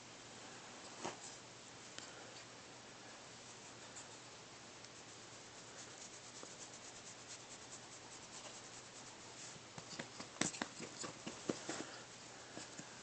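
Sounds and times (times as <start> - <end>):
hand rubbing dog fur: 3.4 - 13.0.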